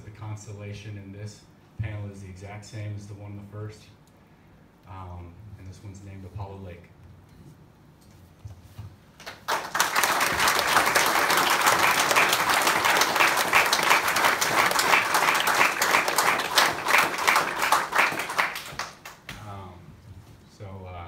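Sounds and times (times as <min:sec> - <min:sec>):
audience applause: 0:09.2 - 0:19.2.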